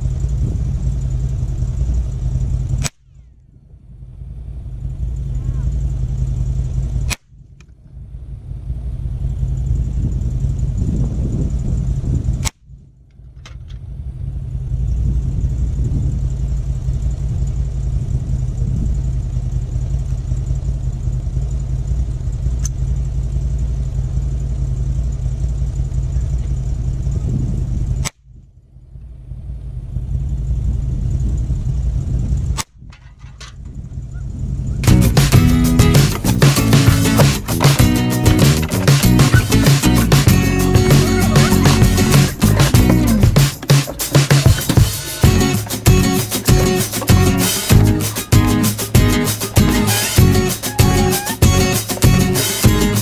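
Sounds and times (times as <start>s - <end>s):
wind rumble on microphone: 9.7s - 13.0s, 13.7s - 16.4s, 18.0s - 19.2s, 27.0s - 28.1s.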